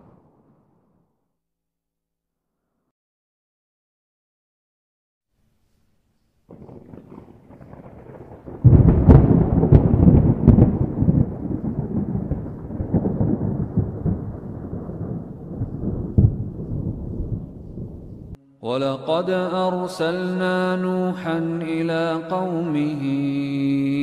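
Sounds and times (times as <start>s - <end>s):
rain patter: 6.5s - 18.4s
thunderclap rumbling: 6.5s - 18.4s.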